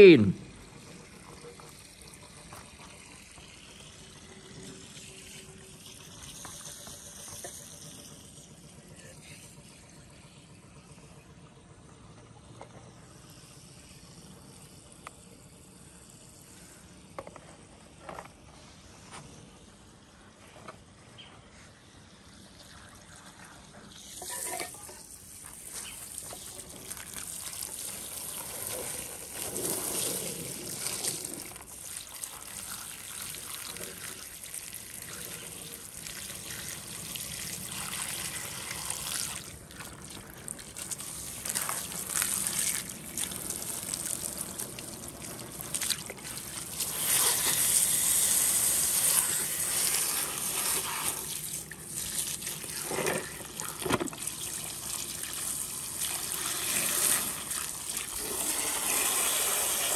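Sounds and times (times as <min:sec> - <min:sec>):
water trickling: 0:22.1 - 0:59.2.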